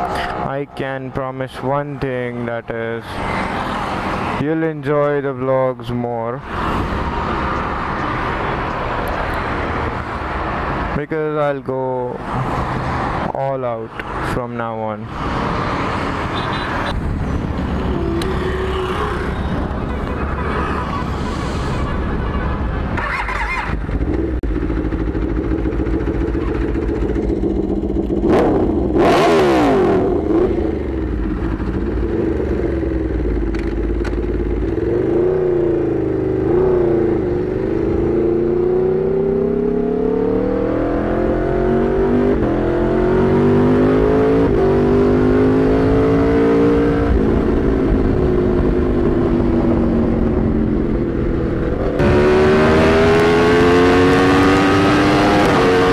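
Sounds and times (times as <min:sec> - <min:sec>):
motorcycle engine revving: 0:23.0 - 0:55.9.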